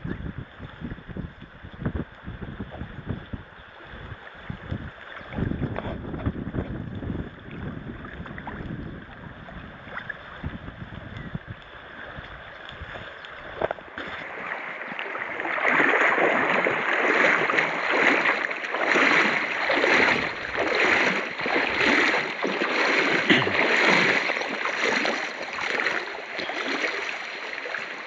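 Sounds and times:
water splashing around wading legs: 0:03.8 - 0:28.0.

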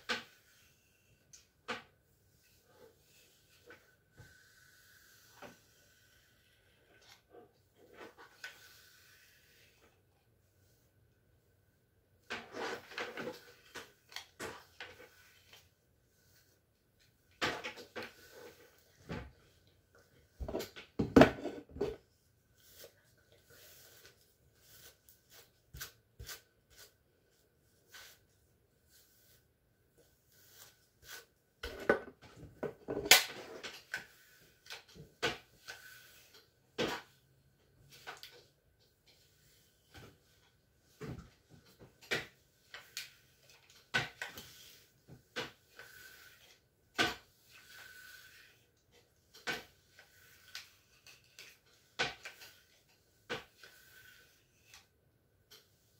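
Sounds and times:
hair tools knocking and rustling: 0:20.4 - 0:21.9.

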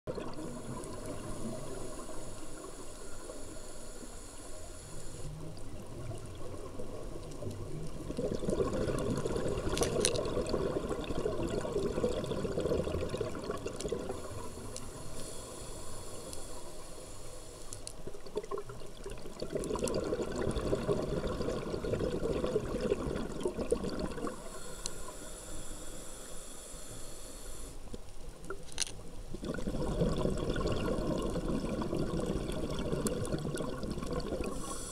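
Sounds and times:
diver inhaling through regulator: 0:00.3 - 0:05.4, 0:14.0 - 0:18.0, 0:24.2 - 0:27.9, 0:34.3 - 0:34.9
bubbling exhalation: 0:08.1 - 0:14.2, 0:18.4 - 0:24.4, 0:29.3 - 0:34.8.

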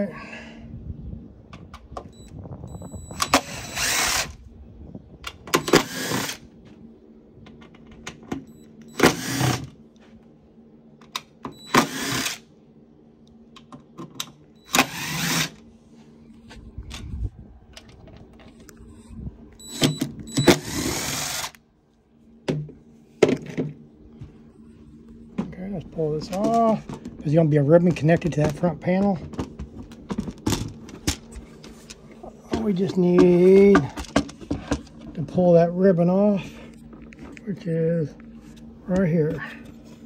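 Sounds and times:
cordless drill motor whining: 0:02.0 - 0:04.5, 0:05.4 - 0:06.5, 0:08.6 - 0:09.7, 0:11.5 - 0:12.5, 0:14.6 - 0:15.6, 0:18.5 - 0:21.6.

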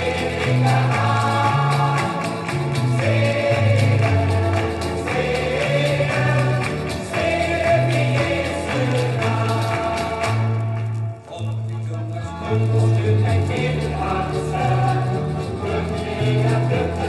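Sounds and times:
steady percussion beat: 0:00.0 - 0:10.6
choir singing gospel song: 0:00.0 - 0:11.0, 0:12.4 - 0:17.0.

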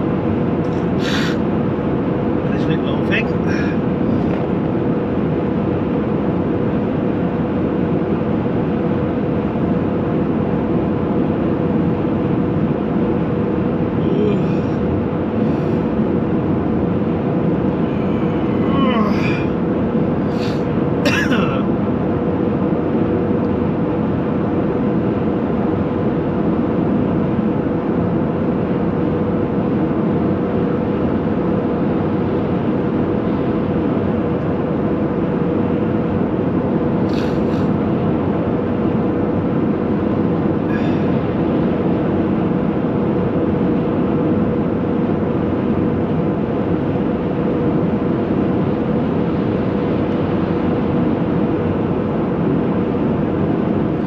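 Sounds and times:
car engine drone: 0:00.0 - 0:54.0
steady hum: 0:00.0 - 0:54.0
road and tyre noise: 0:00.1 - 0:05.3, 0:12.2 - 0:21.6
faint high hisses: 0:01.0 - 0:01.4.

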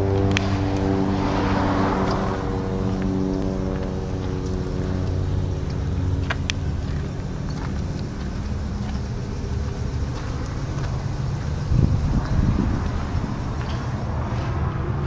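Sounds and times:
diesel engine idling: 0:00.0 - 0:15.0
sharp ticks: 0:02.8 - 0:14.0.

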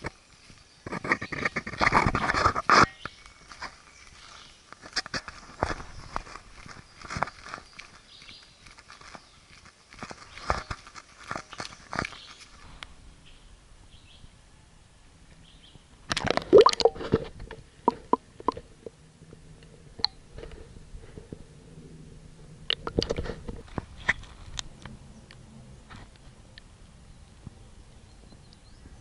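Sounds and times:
crackling knocks against camera: 0:00.8 - 0:03.8
underwater clicks: 0:16.1 - 0:17.2, 0:22.7 - 0:23.2
water splashing: 0:16.1 - 0:17.2.

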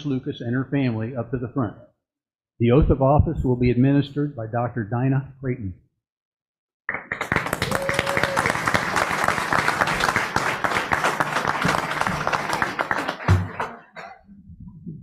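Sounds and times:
audience applause: 0:06.9 - 0:14.0.

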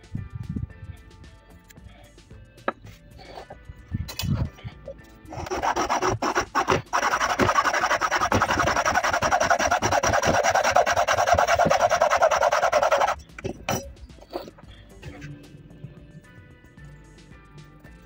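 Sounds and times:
hand saw cutting wood: 0:05.3 - 0:13.2.

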